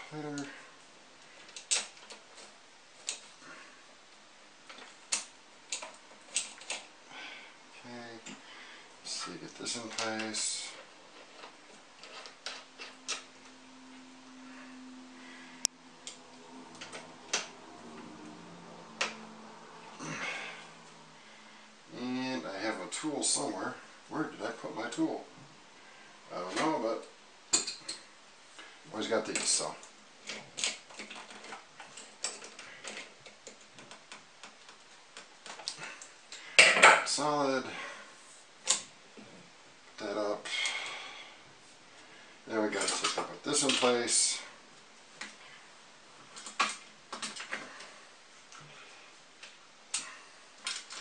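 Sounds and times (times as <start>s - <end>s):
faint steady hum: 0.0s - 51.0s
metal parts clicking and knocking: 30.2s - 37.1s.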